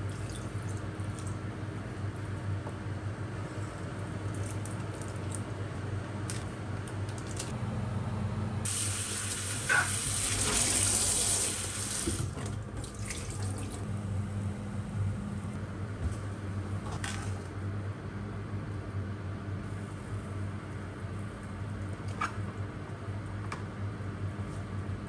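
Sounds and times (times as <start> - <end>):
low steady hum: 0.0 - 25.0
water splashing into sink: 8.7 - 13.9.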